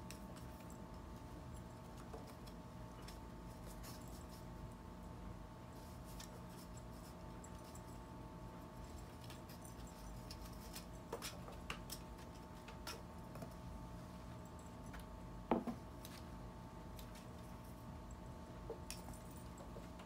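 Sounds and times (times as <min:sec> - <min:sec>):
low room hum: 0:00.0 - 0:20.0
cat playing light clicks and taps: 0:08.8 - 0:13.6.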